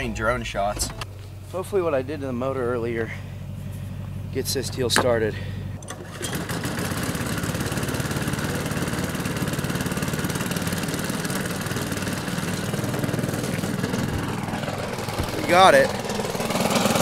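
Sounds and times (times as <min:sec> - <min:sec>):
boat engine idling: 0:00.0 - 0:17.0
starter cord pull: 0:05.8 - 0:08.0.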